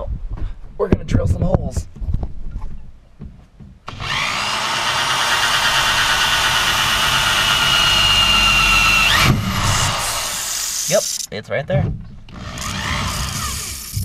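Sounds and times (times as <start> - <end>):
cordless drill whining into metal: 3.9 - 11.3, 12.3 - 14.0.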